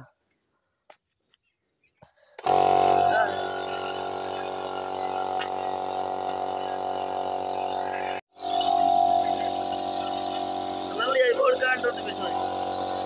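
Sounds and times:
electric air compressor running: 0:02.4 - 0:13.0.

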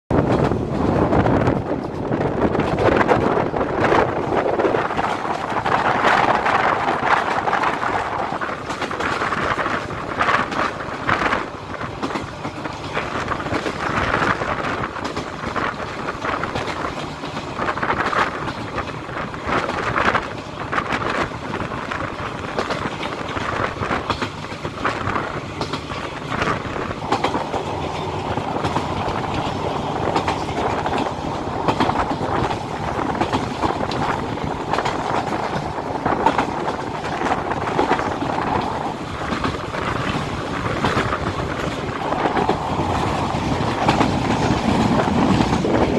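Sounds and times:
steady rushing noise: 0:00.1 - 0:45.9
train wheels clattering over joints: 0:00.1 - 0:45.9.

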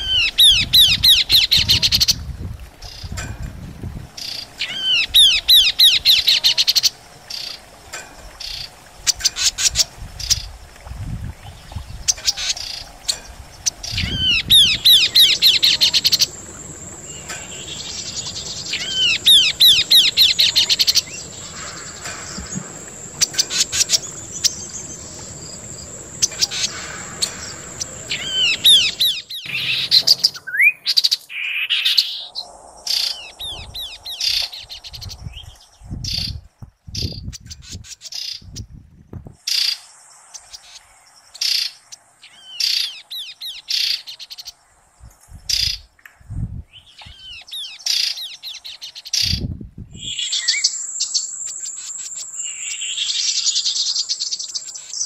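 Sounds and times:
bird chattering and whistling: 0:00.0 - 0:02.2, 0:04.2 - 0:07.6, 0:12.1 - 0:35.2, 0:50.0 - 0:54.5.

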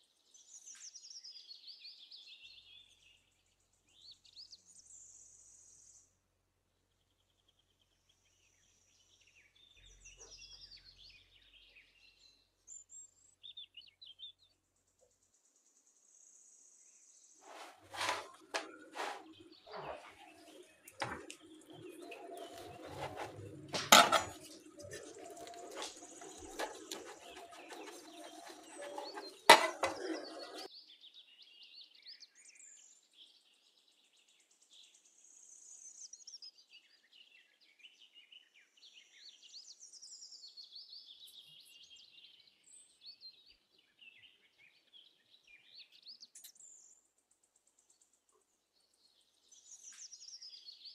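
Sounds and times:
birds chirping softly: 0:00.0 - 0:50.9.

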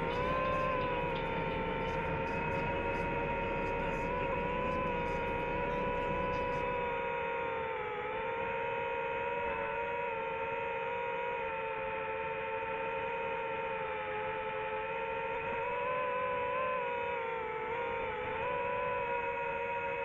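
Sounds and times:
drone propellers whining: 0:00.0 - 0:10.4.

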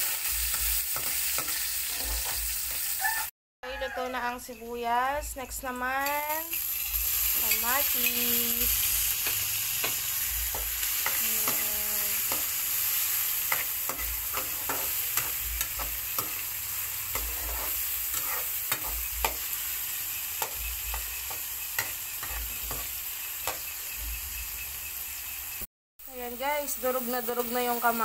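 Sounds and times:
metal spatula scraping a pan: 0:00.0 - 0:03.0, 0:06.0 - 0:23.8
vegetables sizzling in oil: 0:00.0 - 0:03.9, 0:05.6 - 0:28.0.

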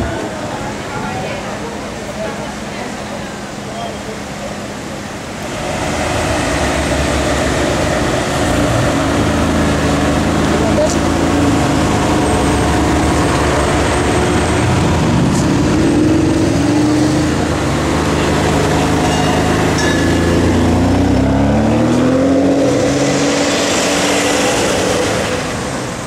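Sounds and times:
car engine accelerating: 0:05.2 - 0:26.0.

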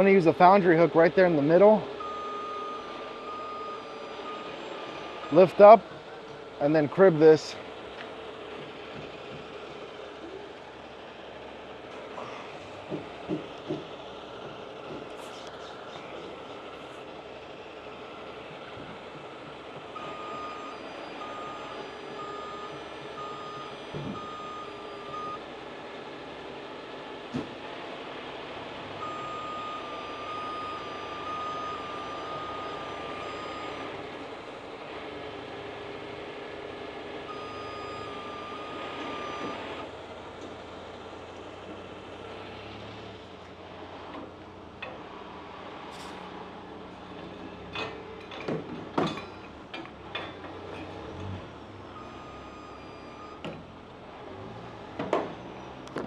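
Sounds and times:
truck backup alarm beeping: 0:00.0 - 0:07.4, 0:19.4 - 0:25.5, 0:28.9 - 0:34.6, 0:36.9 - 0:40.0, 0:51.5 - 0:53.6
diesel truck engine running: 0:00.0 - 0:56.0.

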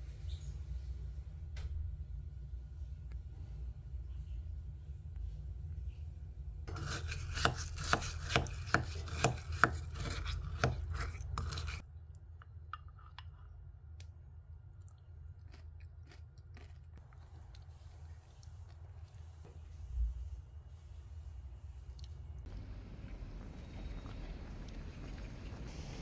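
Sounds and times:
spoon stirring crunchy grains: 0:06.7 - 0:11.8.

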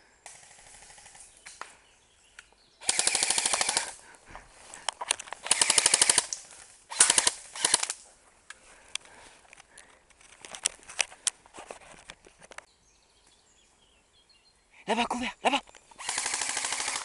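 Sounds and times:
airsoft rifle firing full auto: 0:02.8 - 0:04.0, 0:05.4 - 0:08.0, 0:16.0 - 0:17.0.

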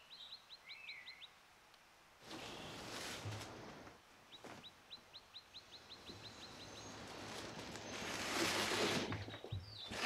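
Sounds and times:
bird chirping: 0:00.0 - 0:01.4, 0:04.2 - 0:08.3, 0:09.0 - 0:10.0
packaging rustling and scraping: 0:07.1 - 0:09.3.

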